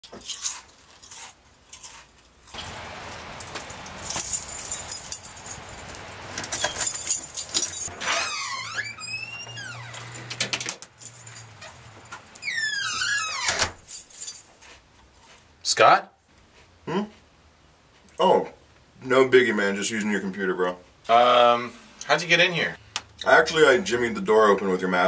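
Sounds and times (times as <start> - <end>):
keys jangling in door lock: 3.4 - 14.5
door hinge squeaking: 7.9 - 10.6, 12.4 - 13.8.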